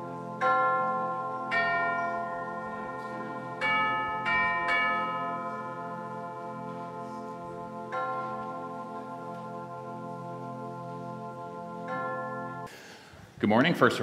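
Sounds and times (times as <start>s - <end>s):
bell-like chime notes: 0.0s - 10.1s
soft low held chord: 0.0s - 12.7s.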